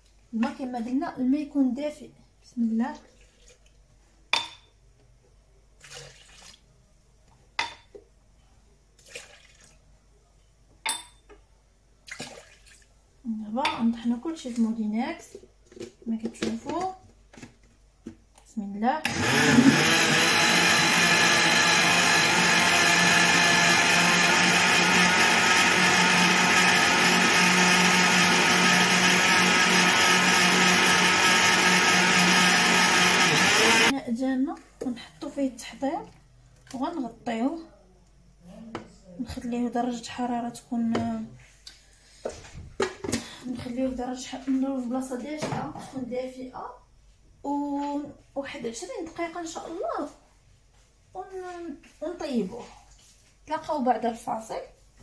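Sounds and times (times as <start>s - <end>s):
water splashing into blender jar: 5.8s - 6.6s, 12.1s - 12.9s
blender running: 19.0s - 33.9s.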